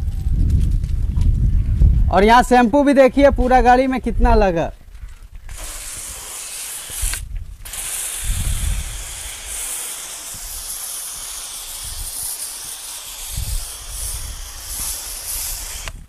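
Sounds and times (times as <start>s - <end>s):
pressure washer foam spraying: 5.5s - 16.0s.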